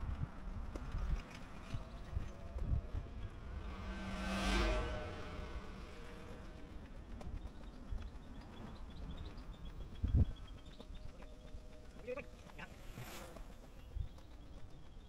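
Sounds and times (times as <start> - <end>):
vehicle passing: 1.6 - 9.8.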